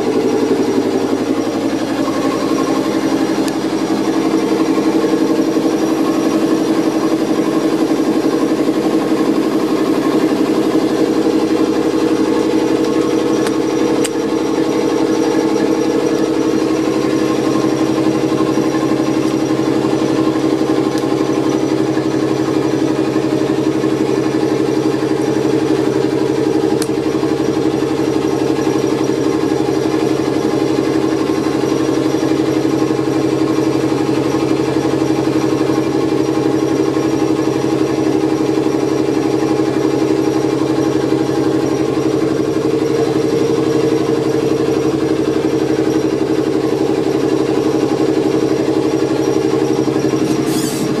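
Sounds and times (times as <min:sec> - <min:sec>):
train machinery humming: 0:00.0 - 0:30.4, 0:39.6 - 0:51.0.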